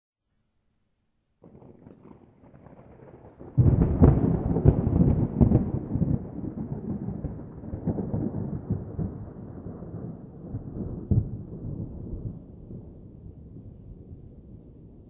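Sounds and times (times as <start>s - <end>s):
thunder cracking and rumbling: 1.4s - 15.0s.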